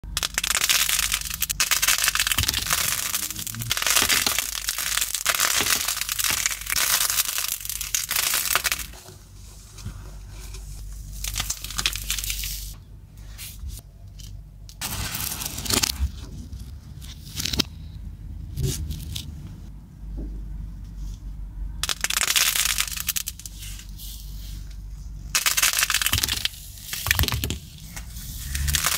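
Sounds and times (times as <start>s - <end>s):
clay blocks crunching by hand: 0.0s - 9.0s, 21.8s - 23.9s, 25.3s - 28.9s.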